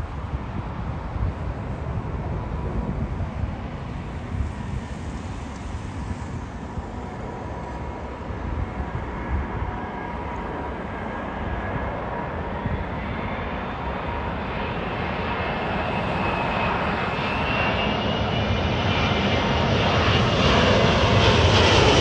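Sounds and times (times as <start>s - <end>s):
jet engine rumble: 0.0s - 22.0s.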